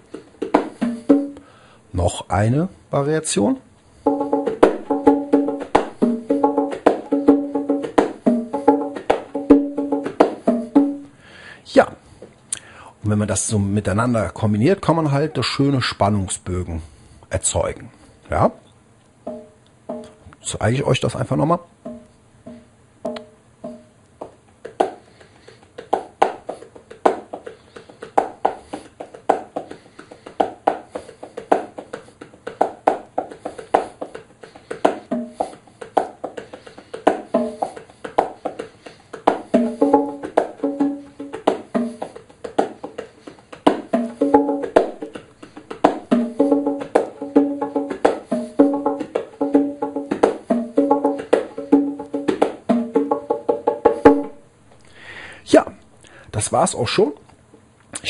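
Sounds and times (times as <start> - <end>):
bongos muted strokes and slaps: 0.0 - 1.4, 4.0 - 11.1, 21.8 - 54.4
bongos ringing open tones: 0.4 - 1.6, 4.0 - 11.2, 19.2 - 20.3, 21.8 - 25.0, 32.6 - 54.5.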